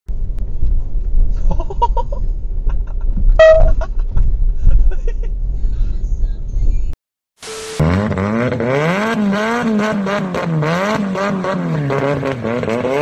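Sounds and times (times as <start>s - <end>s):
road and engine rumble: 0.1s - 13.0s
car horn honk: 3.4s - 3.8s
short high chirps: 3.4s - 3.8s.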